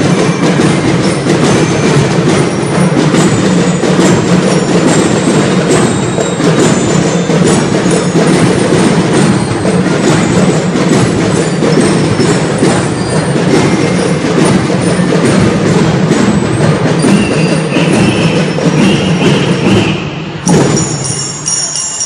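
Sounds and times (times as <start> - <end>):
snare and bass drumming: 0.0 - 21.5
bell-lyre notes ringing: 20.4 - 22.0.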